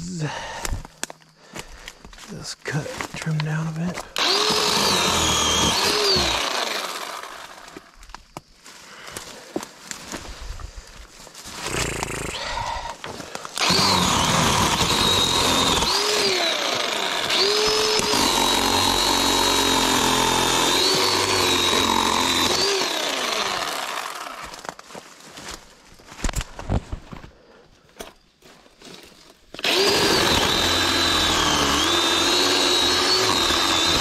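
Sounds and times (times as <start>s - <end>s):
electric cutting tool whining: 4.2s - 7.9s, 13.6s - 24.7s, 29.6s - 34.0s.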